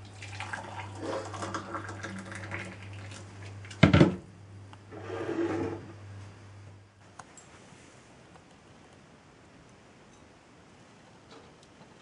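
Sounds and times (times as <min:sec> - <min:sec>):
water pouring into mug: 0:00.0 - 0:03.2.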